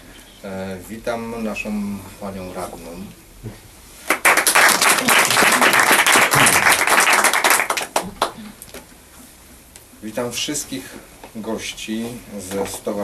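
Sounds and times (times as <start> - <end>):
audience applauding: 4.1 - 8.5.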